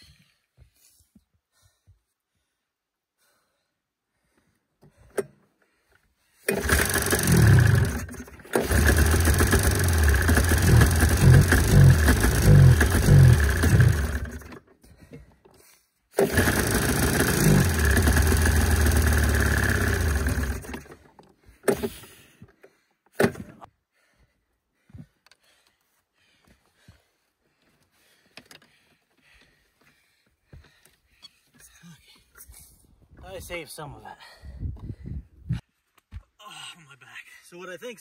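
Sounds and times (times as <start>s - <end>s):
snowmobile engine revving unevenly: 6.5s - 14.5s, 16.2s - 20.9s.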